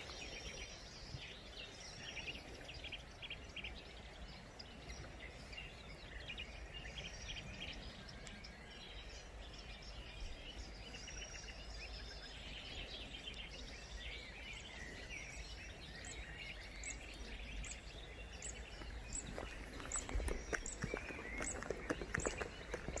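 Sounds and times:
birds chirping and singing: 0.0s - 23.0s.

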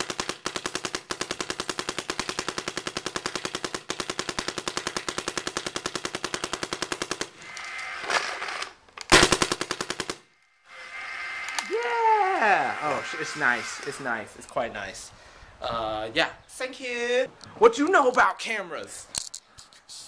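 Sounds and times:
paintball marker rapid firing: 0.0s - 8.2s, 9.1s - 10.3s.

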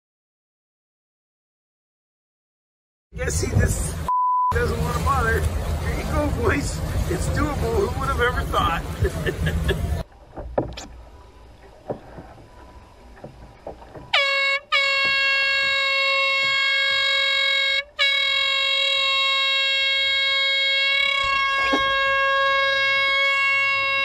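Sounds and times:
faint knocks: 10.3s - 14.2s
air horn blasts: 14.1s - 24.0s.

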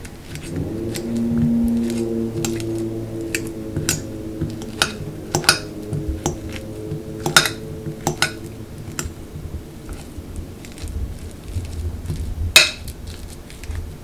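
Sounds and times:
fork mashing bananas: 4.6s - 6.6s, 7.2s - 9.2s.

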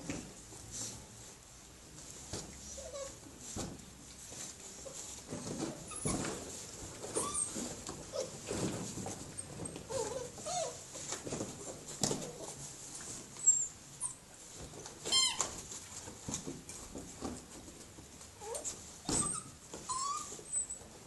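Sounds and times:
puppies scuffling on floor: 2.0s - 21.0s
puppies whining: 7.2s - 8.4s, 9.7s - 10.8s, 18.4s - 20.8s.

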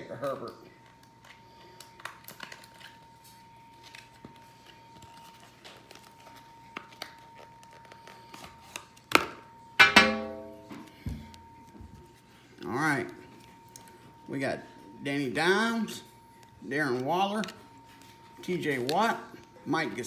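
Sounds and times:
faint high hum: 0.0s - 20.0s
cards being handled: 0.2s - 9.2s
card pack wrapper tearing: 1.7s - 3.0s.

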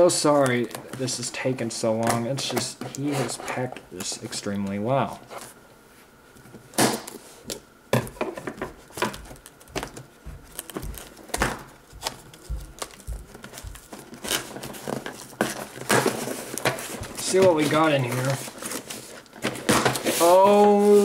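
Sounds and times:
paper and tape crinkling and tearing: 0.0s - 5.6s, 8.8s - 21.0s
scissors cutting packing tape: 12.0s - 16.7s.

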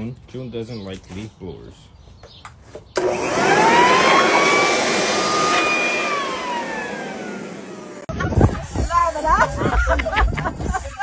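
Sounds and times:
electric leaf blower running: 3.0s - 8.1s.

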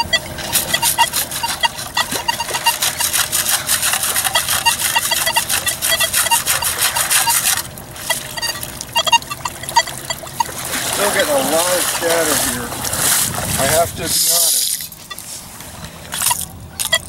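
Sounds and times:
metal detector beeps: 0.0s - 12.5s, 15.0s - 15.4s, 16.2s - 17.0s
crackle of moving water: 2.2s - 13.6s.

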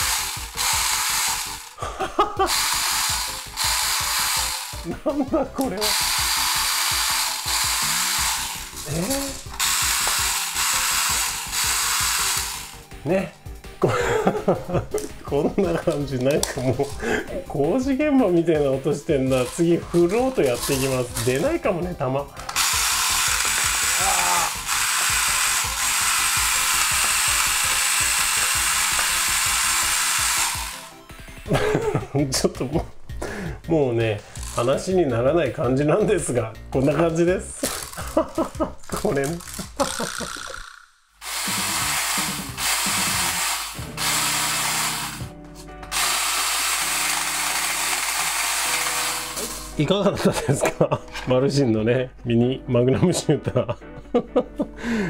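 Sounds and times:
toy gun motor whirring: 0.0s - 1.8s, 2.4s - 4.9s, 5.6s - 12.8s, 19.2s - 21.4s, 22.5s - 30.9s, 34.4s - 34.9s, 37.7s - 38.1s, 39.3s - 45.3s, 45.9s - 49.8s.

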